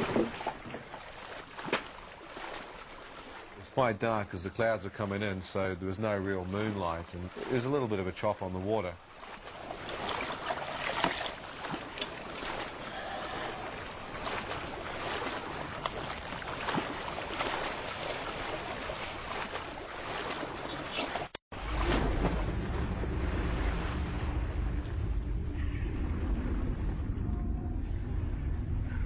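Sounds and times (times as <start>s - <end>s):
water splashing around boat: 0.0s - 26.9s
wind: 0.0s - 29.0s
underwater rumble: 21.6s - 29.0s.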